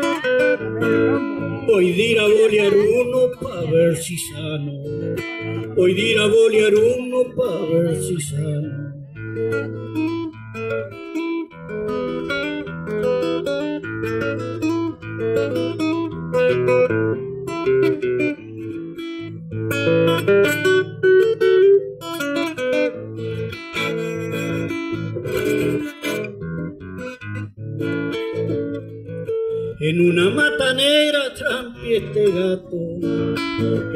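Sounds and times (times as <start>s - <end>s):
acoustic guitar plucked melody: 0.0s - 33.9s.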